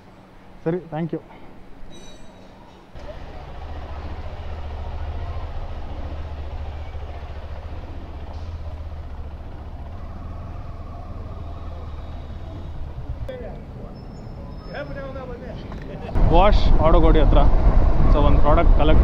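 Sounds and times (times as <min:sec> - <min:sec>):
motorcycle engine droning: 0:03.0 - 0:13.3.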